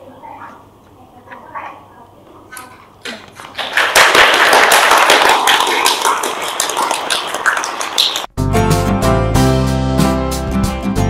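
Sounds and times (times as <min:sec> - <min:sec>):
students applauding: 0:03.4 - 0:08.3.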